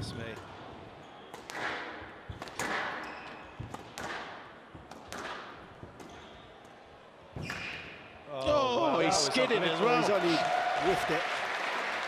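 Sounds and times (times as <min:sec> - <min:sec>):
squash ball cracks echoing: 0:01.3 - 0:07.6.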